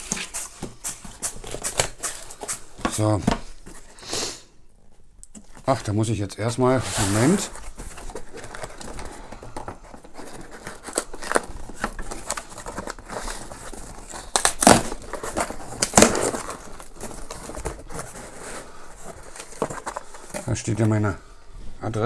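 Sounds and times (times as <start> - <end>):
cardboard ripping: 0.0 - 3.1, 10.0 - 20.3
cardboard scraping and crackling: 0.0 - 3.9, 6.5 - 21.1.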